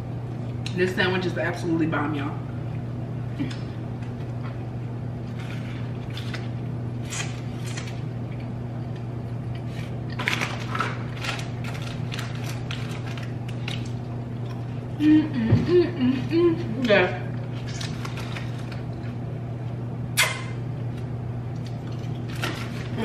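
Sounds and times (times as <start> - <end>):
steady low hum: 0.0 - 23.0
plastic packet crinkling: 10.1 - 14.0
chewing with wet mouth clicks: 21.5 - 22.3.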